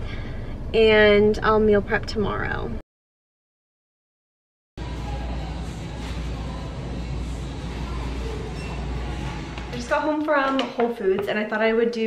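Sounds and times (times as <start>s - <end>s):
shopping cart rolling: 4.8s - 10.0s.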